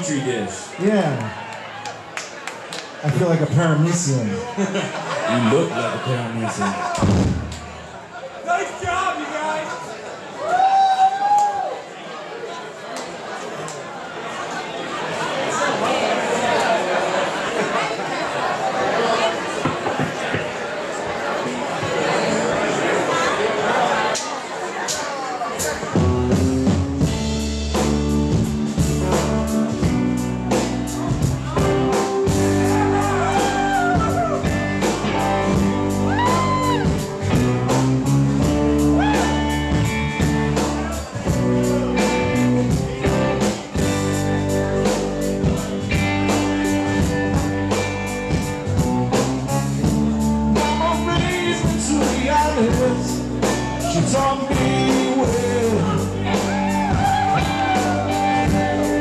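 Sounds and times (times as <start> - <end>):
live rock band playing: 5.0 - 8.0, 25.5 - 59.0.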